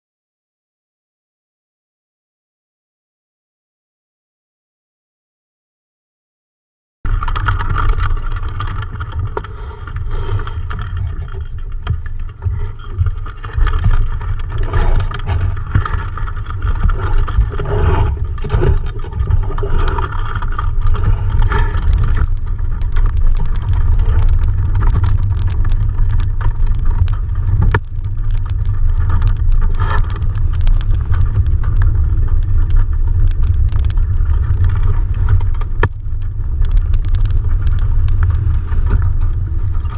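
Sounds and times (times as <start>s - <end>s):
sharp clicks and knocks: 7.1s - 39.9s
wind buffeting microphone: 7.1s - 39.9s.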